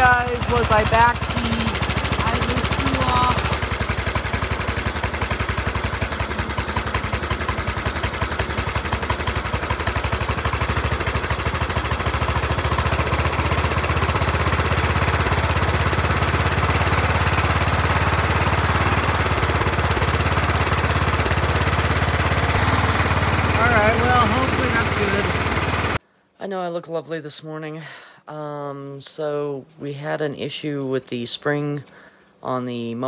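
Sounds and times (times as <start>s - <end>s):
small gas engine idling: 0.0s - 26.0s.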